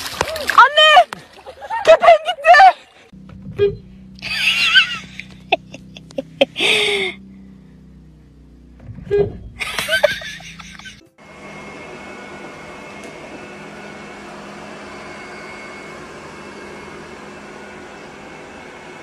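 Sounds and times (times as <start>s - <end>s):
robot vacuum cleaner humming: 9.6s - 19.0s.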